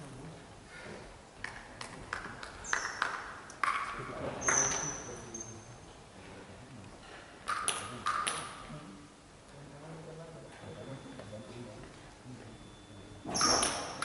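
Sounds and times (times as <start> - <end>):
sports shoes squeaking on floor: 2.6 - 3.1, 4.4 - 5.7, 13.2 - 14.0.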